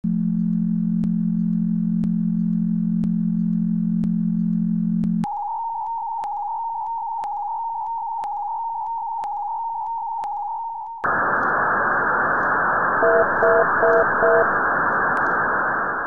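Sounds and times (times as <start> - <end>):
synthesized low hum: 0.0 - 5.3, 11.1 - 16.0
sharp electronic clicks: 13.0 - 14.5
flickering high electronic tone: 13.0 - 14.6.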